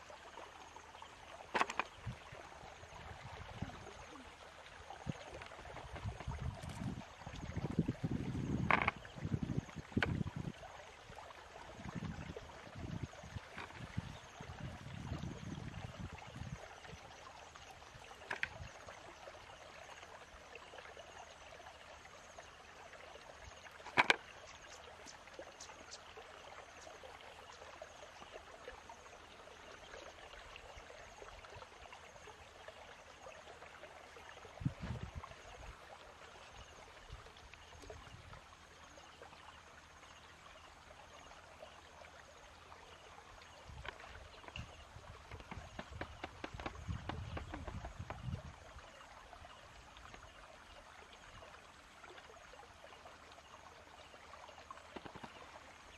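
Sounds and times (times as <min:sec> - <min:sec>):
bamboo trap being handled: 0:01.5 - 0:01.9, 0:08.6 - 0:09.0, 0:13.5 - 0:13.8, 0:18.2 - 0:18.6, 0:23.8 - 0:24.2.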